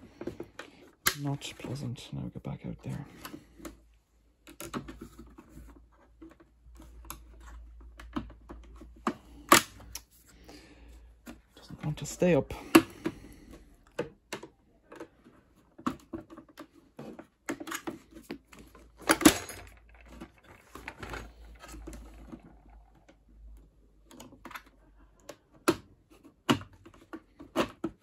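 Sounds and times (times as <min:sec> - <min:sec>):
plastic clicks and knocks: 0:13.8 - 0:28.0.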